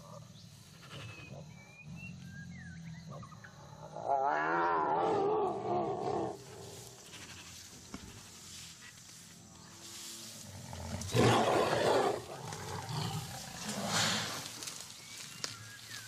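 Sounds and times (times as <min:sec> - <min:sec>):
tiger roaring: 0:03.8 - 0:06.8, 0:10.6 - 0:14.5.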